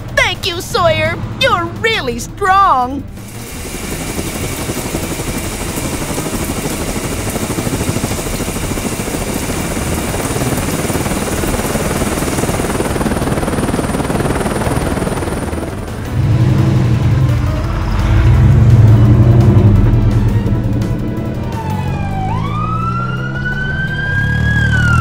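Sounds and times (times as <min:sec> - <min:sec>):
helicopter rotor blades chopping: 0:00.0 - 0:25.0
hiss: 0:03.2 - 0:05.7
deep engine sound: 0:15.5 - 0:25.0.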